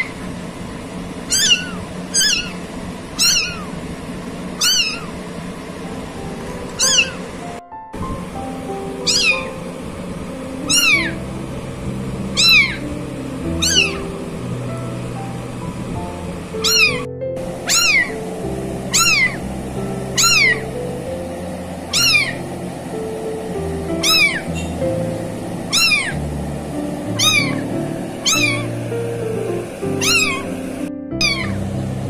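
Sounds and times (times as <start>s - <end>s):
kitten meowing: 1.3s - 2.6s, 3.2s - 3.8s, 4.6s - 5.2s, 6.8s - 7.2s, 9.0s - 9.6s, 10.7s - 11.2s, 12.3s - 12.9s, 13.6s - 14.1s, 16.6s - 18.2s, 18.9s - 19.4s, 20.2s - 20.6s, 21.9s - 22.4s, 24.0s - 24.8s, 25.7s - 26.2s, 27.2s - 28.7s, 30.0s - 30.5s, 31.2s - 31.6s
background music sustained notes: 5.6s - 32.0s.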